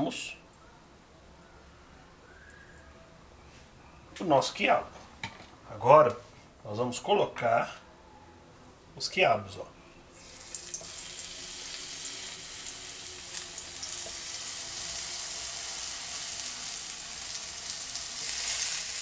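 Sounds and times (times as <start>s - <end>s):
okra sizzling in frying pan: 10.1s - 19.0s.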